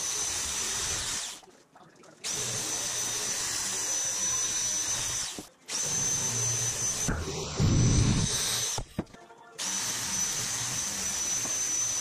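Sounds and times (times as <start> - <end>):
electric shear motor whine: 2.3 - 8.8, 9.6 - 12.0.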